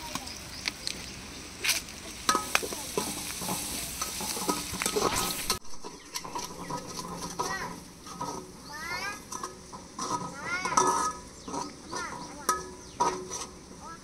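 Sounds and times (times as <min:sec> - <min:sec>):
food sizzling: 0:00.0 - 0:14.0
ladle scraping in metal pot: 0:02.2 - 0:13.8
ladle clinking against pot: 0:02.3 - 0:07.5.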